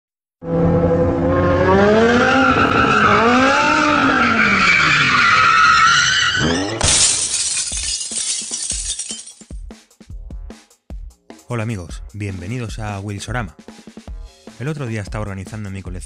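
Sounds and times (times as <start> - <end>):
car engine revving: 0.4 - 6.8
tyres squealing: 4.0 - 7.2.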